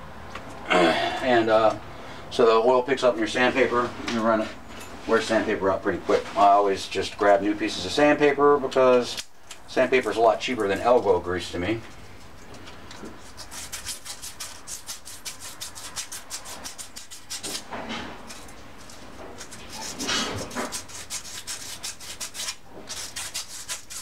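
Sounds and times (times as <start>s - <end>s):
sandpaper rubbing on metal: 13.2s - 17.6s, 19.4s - 24.0s.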